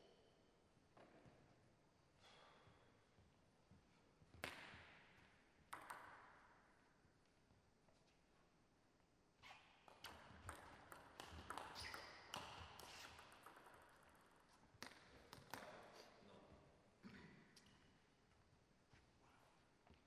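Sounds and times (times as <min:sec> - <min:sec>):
ping pong ball hits: 0:05.7 - 0:06.7, 0:09.9 - 0:15.8.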